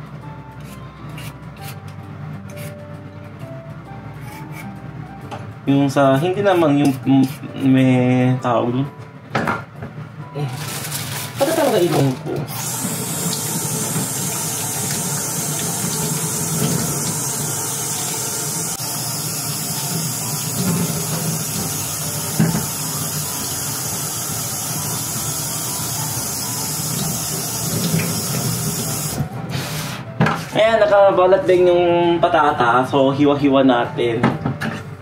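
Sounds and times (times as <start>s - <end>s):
tap running into sink: 12.6s - 18.4s, 20.4s - 22.8s, 26.9s - 29.2s.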